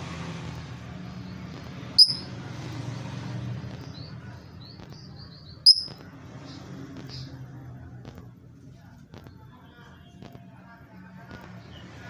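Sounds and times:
bird chirping: 0:02.0 - 0:02.3, 0:03.9 - 0:06.0.

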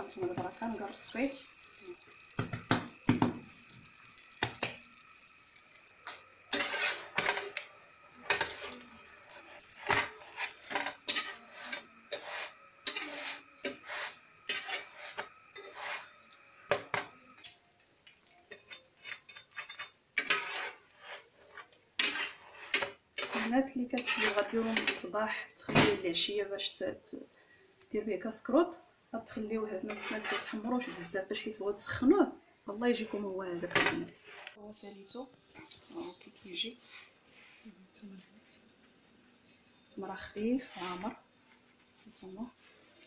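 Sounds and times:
spatula scraping frying pan: 0:00.0 - 0:17.6, 0:18.5 - 0:25.2, 0:29.6 - 0:31.3, 0:32.9 - 0:34.6, 0:40.6 - 0:41.6
bread sizzling: 0:00.0 - 0:37.8, 0:38.4 - 0:43.0.

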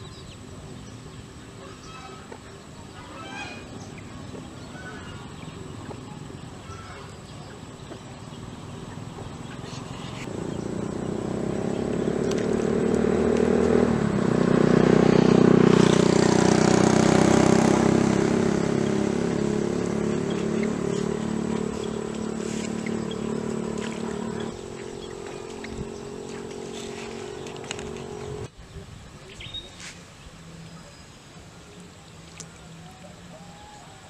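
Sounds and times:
vehicle engine passing by: 0:03.1 - 0:28.5.

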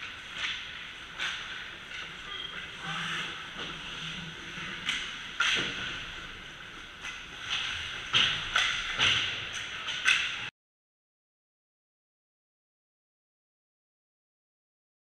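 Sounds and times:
sticks and puck clacking: 0:00.0 - 0:02.5, 0:04.6 - 0:10.5.

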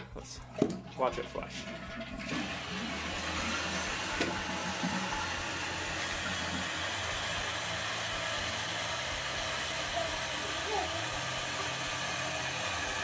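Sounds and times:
toilet tank refilling: 0:00.2 - 0:13.0
toilet flushing: 0:00.4 - 0:13.0.

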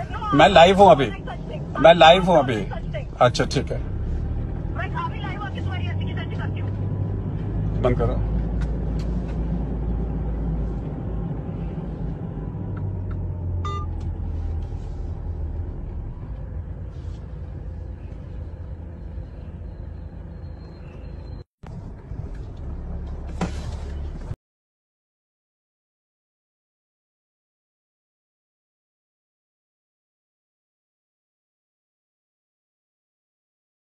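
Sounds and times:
car rumble inside cabin: 0:00.0 - 0:24.4.

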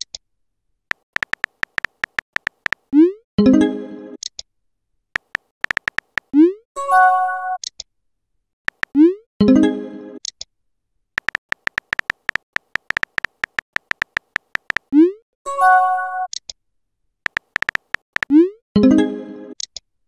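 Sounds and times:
keyboard tap clicks: 0:00.9 - 0:02.9, 0:05.2 - 0:06.3, 0:08.7 - 0:09.0, 0:11.2 - 0:14.9, 0:17.3 - 0:18.3.

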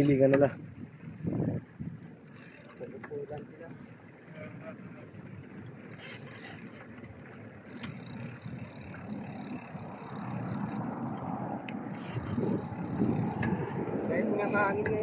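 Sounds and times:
bicycle freewheel ticking: 0:01.8 - 0:03.4, 0:05.9 - 0:06.9, 0:07.6 - 0:10.9, 0:11.8 - 0:15.0
low rumble of riding noise: 0:02.8 - 0:15.0.

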